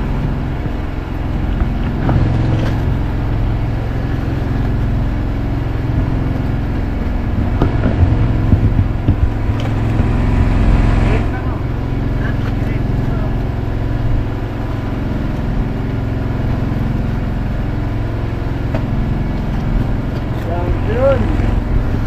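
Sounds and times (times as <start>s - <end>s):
engine droning: 0.0s - 22.0s
knocks on bamboo poles: 7.4s - 10.2s.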